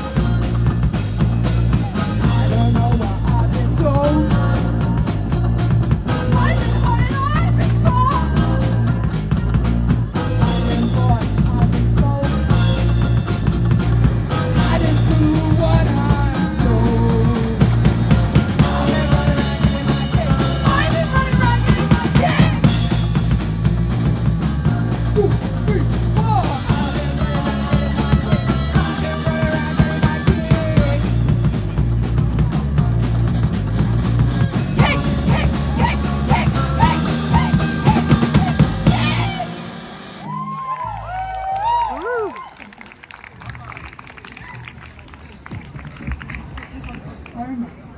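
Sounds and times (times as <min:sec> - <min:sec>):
drum kit beat: 0:00.0 - 0:39.9
electric guitars: 0:00.0 - 0:42.3
bass guitar: 0:00.0 - 0:42.5
person singing: 0:01.8 - 0:05.2, 0:10.4 - 0:12.9, 0:14.3 - 0:17.9, 0:18.6 - 0:22.7, 0:26.3 - 0:31.4.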